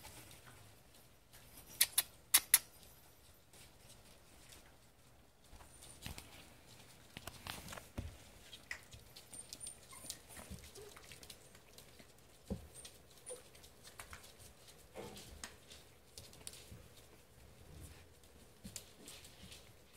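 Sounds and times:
puppy claws clicking on hardwood floor: 7.0s - 17.5s.

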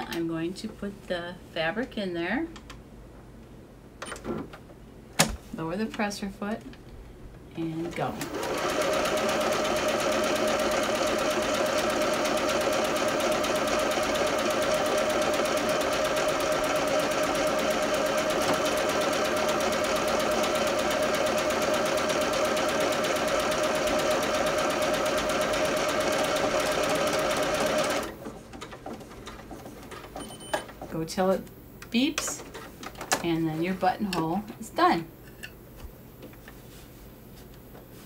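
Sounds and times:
sewing machine running: 8.2s - 28.2s.

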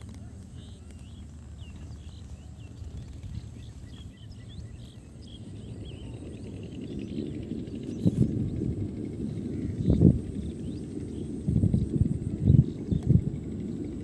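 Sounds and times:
low rumble: 0.0s - 14.0s
small birds chirping: 0.0s - 14.0s.

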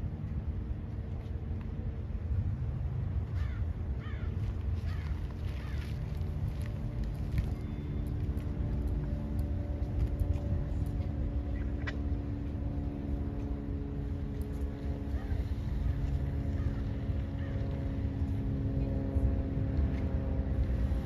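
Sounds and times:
diesel train engine running: 4.4s - 21.0s.

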